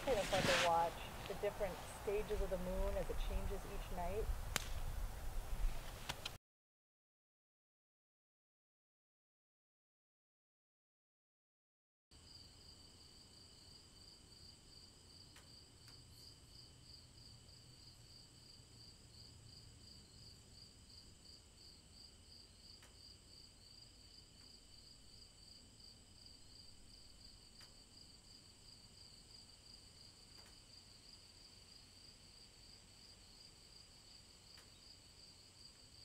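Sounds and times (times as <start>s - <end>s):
faint ticks: 15.2s - 16.1s, 22.7s - 23.1s, 27.5s - 27.9s, 30.2s - 30.6s, 34.5s - 34.8s.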